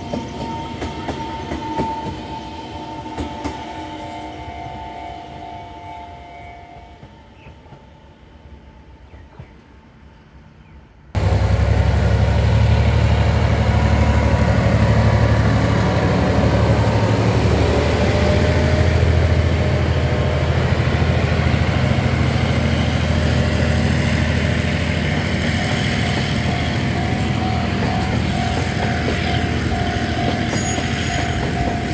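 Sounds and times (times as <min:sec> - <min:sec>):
diesel locomotive engine: 0:00.0 - 0:31.9
train wagons rolling over rails: 0:24.5 - 0:31.9.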